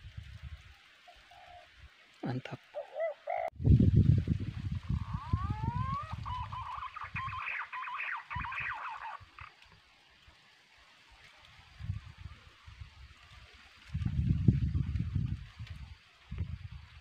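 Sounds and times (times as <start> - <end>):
bird whistling and chattering: 5.1 - 9.5.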